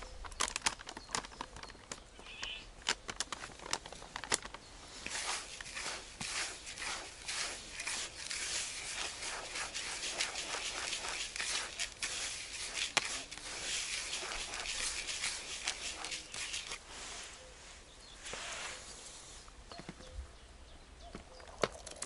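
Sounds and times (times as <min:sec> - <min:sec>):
hand kneading groundbait in bucket: 0:00.0 - 0:17.1.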